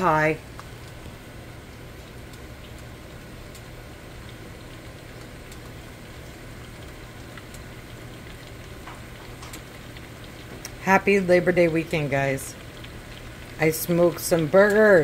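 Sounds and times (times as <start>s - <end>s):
onions sizzling in butter: 0.0s - 15.0s.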